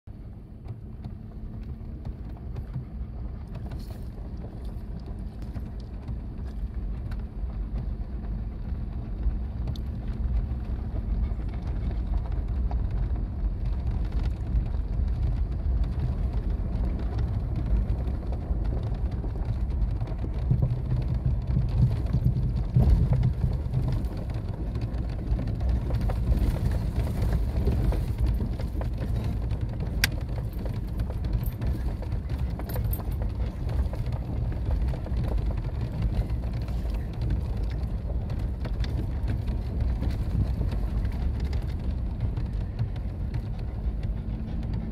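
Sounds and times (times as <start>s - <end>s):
vehicle rumbling over dirt track: 0.1s - 44.9s.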